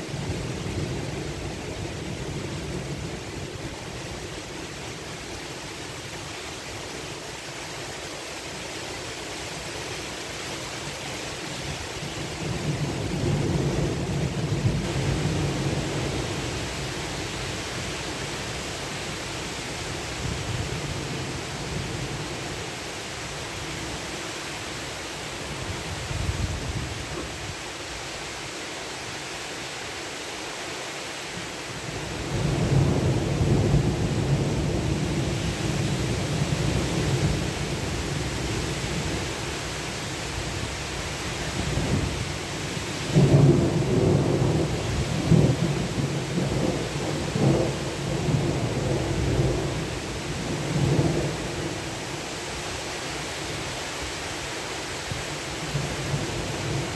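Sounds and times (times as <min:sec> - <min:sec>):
heavy rain falling: 0:00.0 - 0:56.9
low thunder rumbling: 0:43.1 - 0:51.8.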